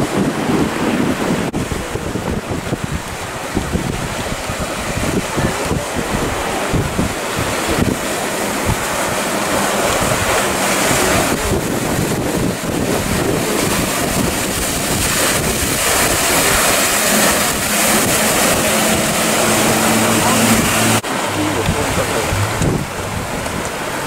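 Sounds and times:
boat engine drone: 0.0 - 24.0
surf and choppy sea: 0.0 - 24.0
wind buffeting microphone: 0.0 - 24.0.

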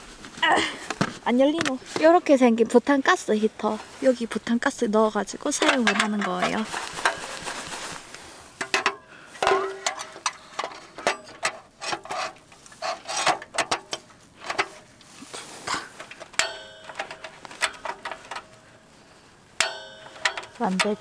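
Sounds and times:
gas heater handling clicks: 16.0 - 18.5, 19.6 - 21.0.

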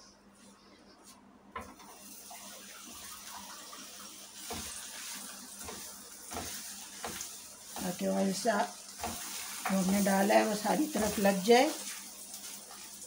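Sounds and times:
frying pan hissing and sizzling: 1.6 - 13.0.

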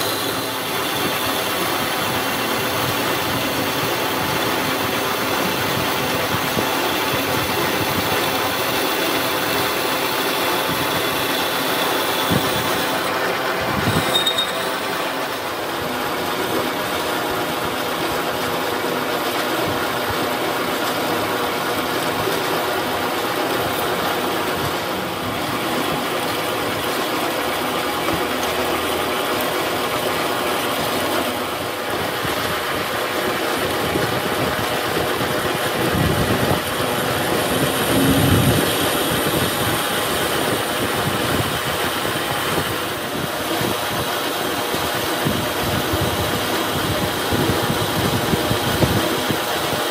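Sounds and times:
thin high cutting whine: 0.0 - 15.8, 34.3 - 43.0
lathe machine hum: 0.0 - 49.9.

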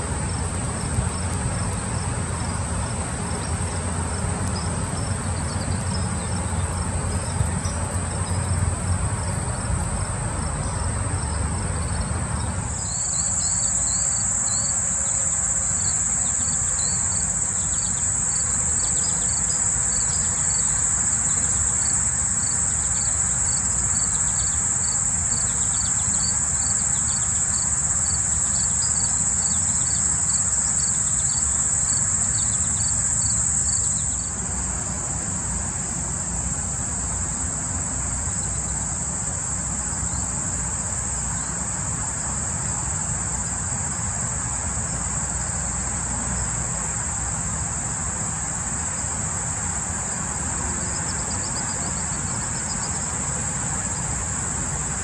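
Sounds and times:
insect chirping in regular pulse: 0.0 - 55.0
insects trilling: 0.0 - 55.0.

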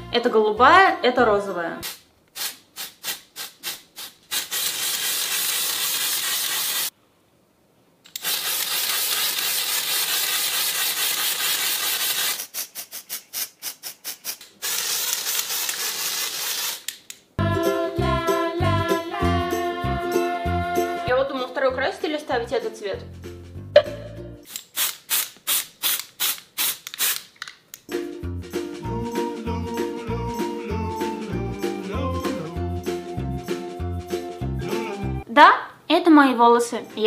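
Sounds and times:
music: 0.0 - 1.8, 17.4 - 24.4, 27.9 - 35.3, 36.0 - 37.0
aerosol spray can spraying: 1.8 - 6.9, 8.1 - 16.9, 24.5 - 27.4.

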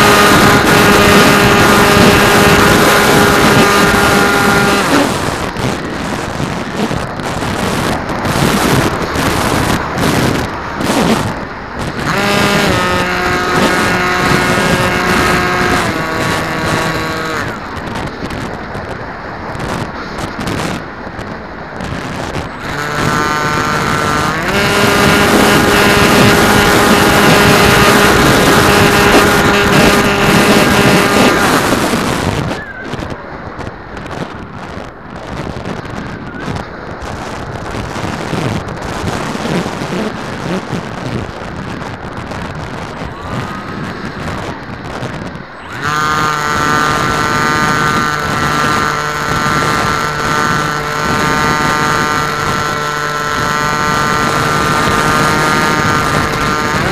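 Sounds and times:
wind on microphone: 0.0 - 56.9
model aircraft motor whining: 12.0 - 17.6, 22.6 - 31.8, 45.5 - 56.9.

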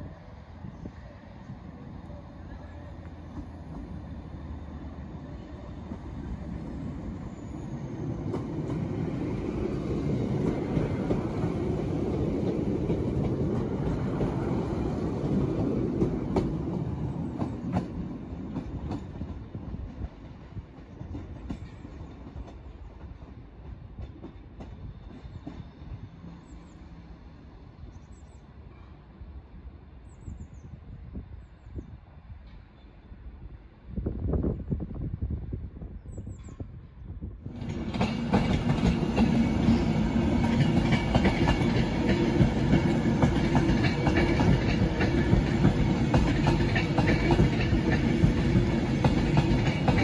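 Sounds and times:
train wheels rumbling on rails: 0.0 - 29.0, 34.0 - 50.0
wheels clicking over rail joints: 37.6 - 50.0.

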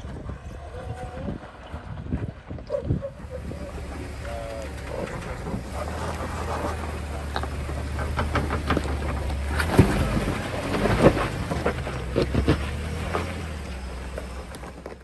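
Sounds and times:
engine running low: 0.0 - 15.0
tyres crunching on rock: 3.4 - 15.0.

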